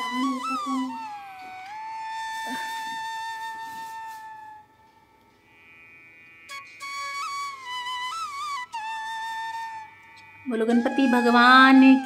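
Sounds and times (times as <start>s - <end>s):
flute melody: 0.0s - 5.0s, 6.5s - 12.0s.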